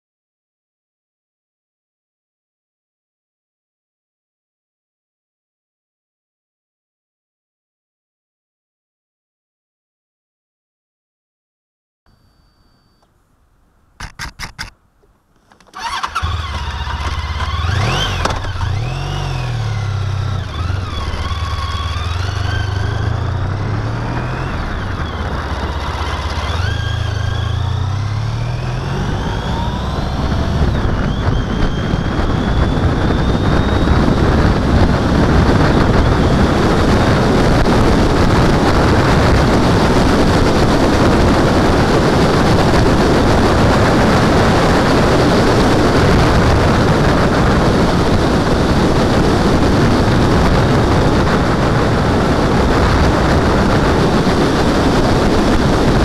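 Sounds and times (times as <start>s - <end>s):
wind and road noise: 12.1s - 56.0s
motorcycle starter cranking: 14.0s - 14.8s, 15.4s - 19.0s
motorcycle engine revving: 15.4s - 56.0s.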